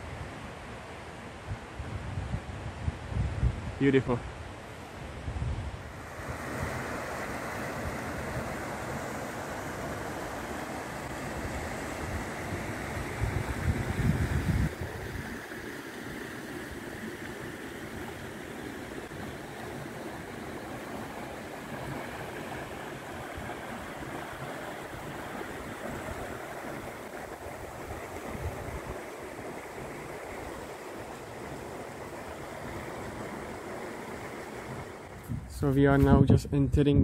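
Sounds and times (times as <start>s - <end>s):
wind rumbling on microphone: 1.3s - 37.0s
river rushing over rapids: 5.9s - 35.2s.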